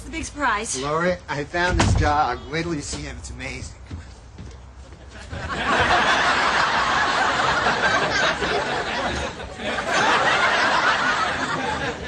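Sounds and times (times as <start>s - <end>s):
studio audience laughing: 5.1s - 12.0s.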